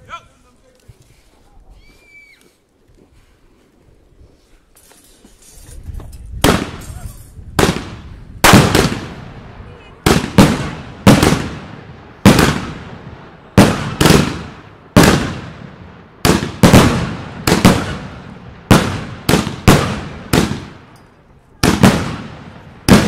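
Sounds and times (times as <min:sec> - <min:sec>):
fireworks bangs: 0:06.3 - 0:21.0, 0:21.6 - 0:23.0.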